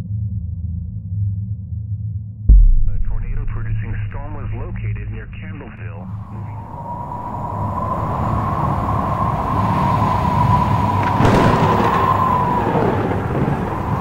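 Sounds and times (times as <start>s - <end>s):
sudden sharp hit: 2.5s - 6.7s
low rumble: 2.5s - 9.5s.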